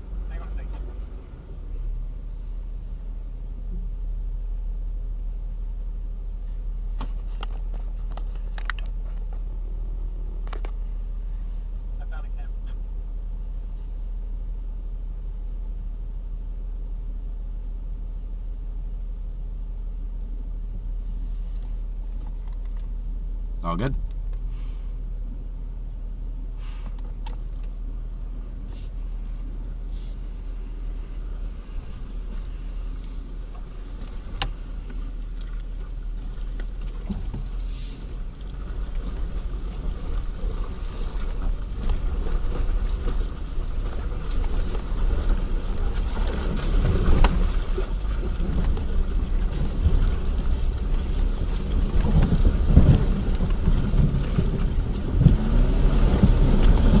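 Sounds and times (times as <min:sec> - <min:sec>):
car engine running low: 0:00.0 - 0:57.0.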